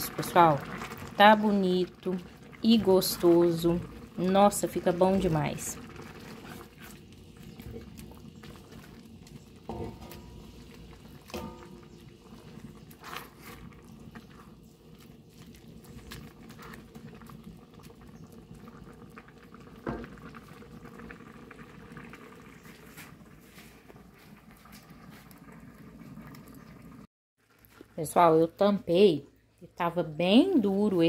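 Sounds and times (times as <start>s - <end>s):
sweet simmering and bubbling: 0.0s - 31.0s
wooden spoon knocking pan: 9.7s - 10.5s, 11.3s - 12.0s.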